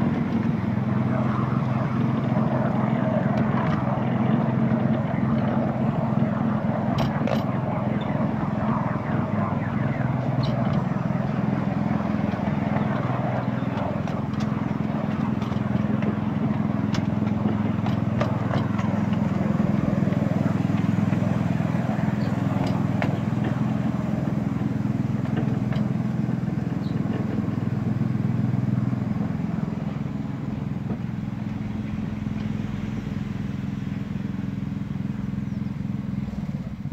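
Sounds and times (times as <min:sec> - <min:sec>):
miniature locomotive engine running: 0:10.0 - 0:35.8.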